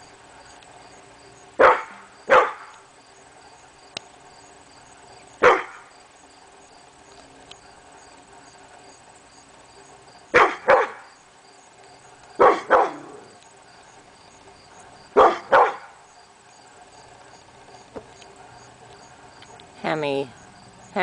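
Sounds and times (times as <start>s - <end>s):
dog barking: 1.6s - 2.7s, 5.4s - 5.8s, 10.3s - 11.0s, 12.4s - 13.3s, 15.2s - 16.0s.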